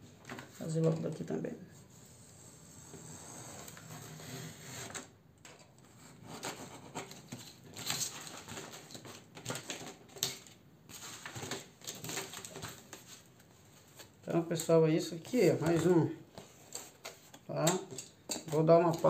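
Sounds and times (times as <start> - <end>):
paper and cardboard rustling: 5.9 - 19.0.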